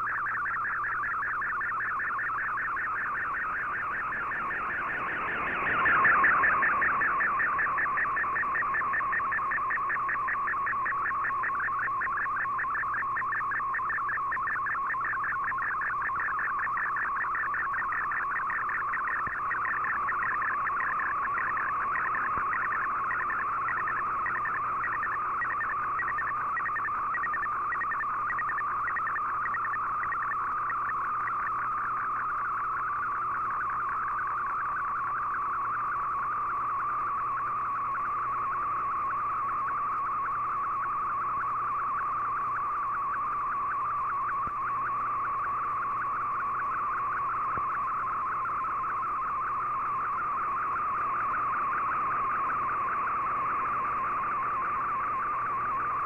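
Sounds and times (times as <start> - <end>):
warbling digital radio signal: 0.0 - 56.0.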